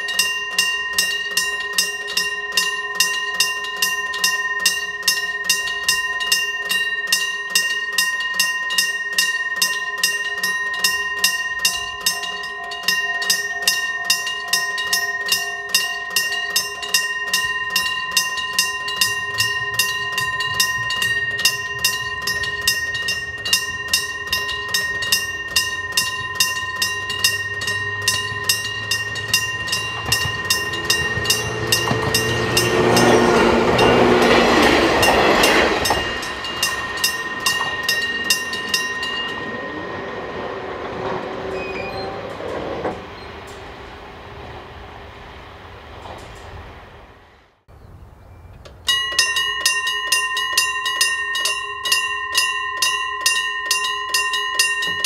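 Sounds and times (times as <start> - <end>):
level crossing bell ringing: 0.0 - 43.8, 48.9 - 55.0
electric train passing: 0.0 - 55.0.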